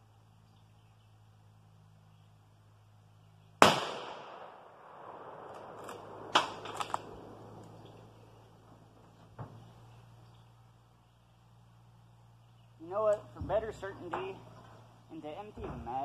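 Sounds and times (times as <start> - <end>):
rifle shot with echo: 3.6 - 8.1.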